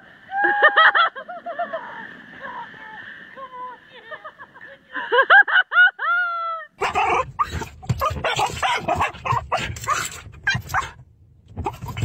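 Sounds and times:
dog barking: 6.8s - 10.9s.

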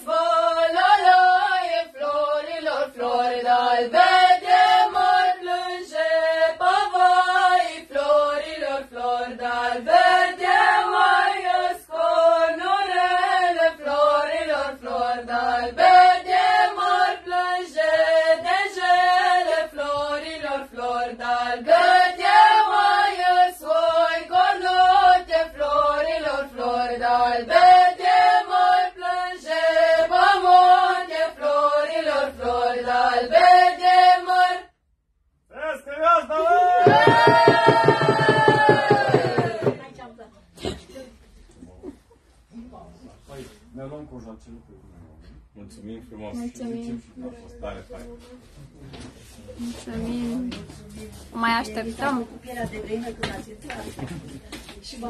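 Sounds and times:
group singing unaccompanied: 0.0s - 34.8s, 36.5s - 40.1s.

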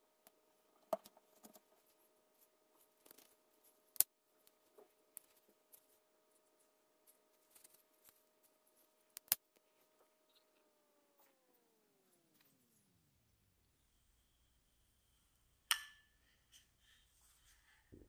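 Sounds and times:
soft rustles: 1.2s - 9.0s, 16.5s - 18.0s.

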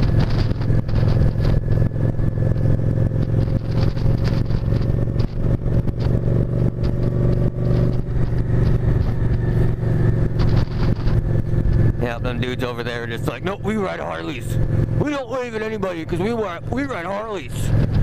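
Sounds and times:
wind noise on microphone: 0.0s - 12.0s, 17.7s - 18.0s
motorcycle engine running: 0.0s - 18.0s.

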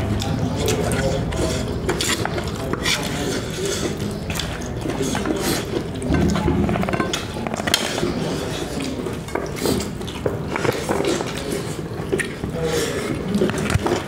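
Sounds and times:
chewing: 0.0s - 14.0s
spoon clinking on plates: 6.0s - 8.0s.

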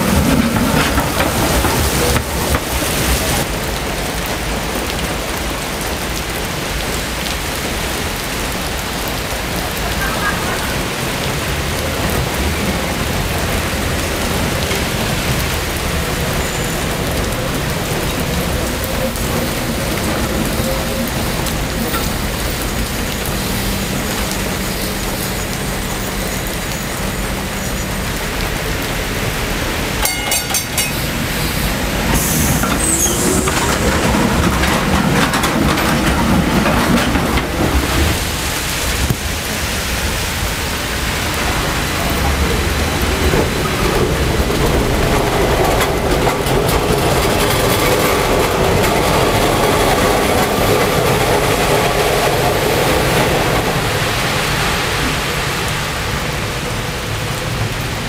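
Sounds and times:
tram motor hum: 0.0s - 4.1s, 17.0s - 55.2s
electric tram rolling past: 0.0s - 58.0s
heavy rain on wet pavement: 0.0s - 58.0s
high squeal: 30.1s - 34.2s.

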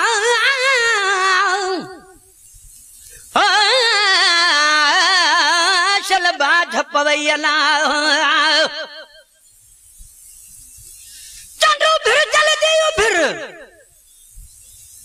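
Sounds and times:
man singing: 0.0s - 2.2s, 3.3s - 9.2s, 11.6s - 13.8s.

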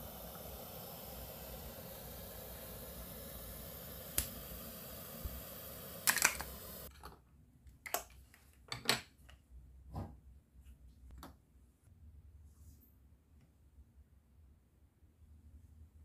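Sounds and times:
steady sizzling hiss: 0.0s - 6.9s.

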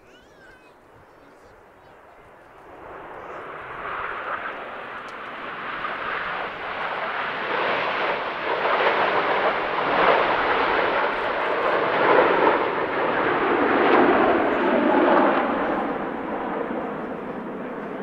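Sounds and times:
jet aircraft rushing noise: 1.6s - 18.0s.

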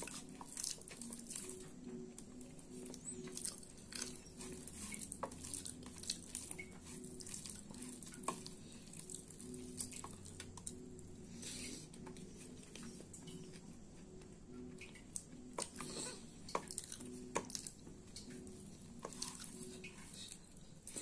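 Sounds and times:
fingers squishing soft food: 0.0s - 13.7s, 15.0s - 21.0s
eating sounds: 14.8s - 21.0s.

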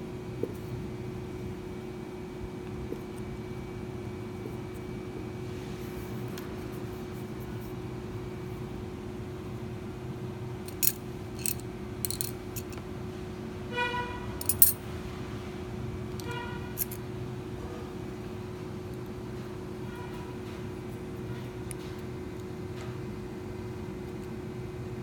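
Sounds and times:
safety pin metallic clicks: 10.7s - 12.8s.

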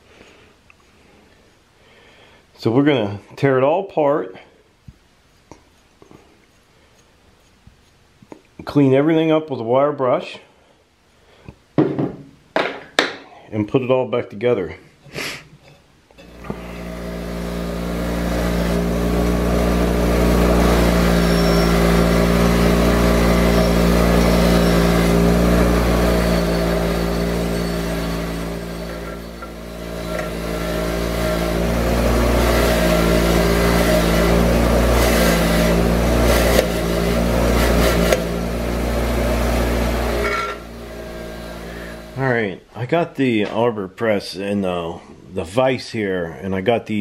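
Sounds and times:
wire wheel rasping on metal: 5.6s - 8.2s, 16.2s - 42.2s
bench grinder motor humming: 16.2s - 42.3s.

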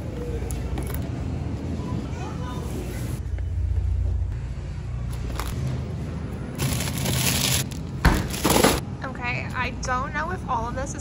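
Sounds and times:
plastic wrapping crinkling: 6.6s - 8.8s.

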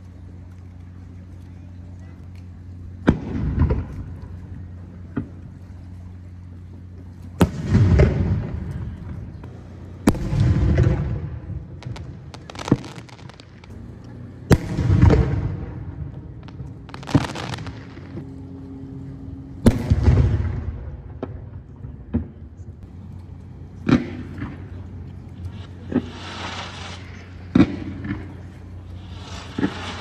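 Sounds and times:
firework shells cracking: 11.8s - 13.7s, 16.4s - 18.2s, 25.5s - 30.0s.

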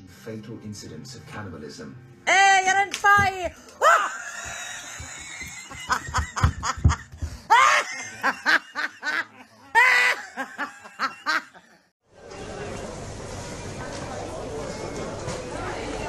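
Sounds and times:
person laughing hard: 3.8s - 11.8s.

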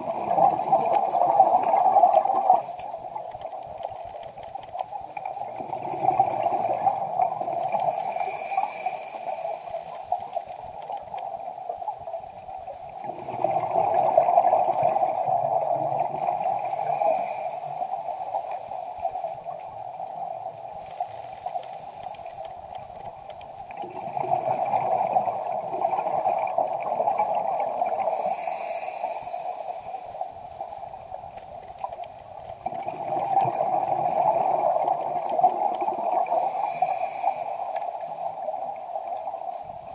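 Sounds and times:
steady watery background: 0.0s - 39.9s
underwater exhaled bubbles gurgling: 0.0s - 39.9s.

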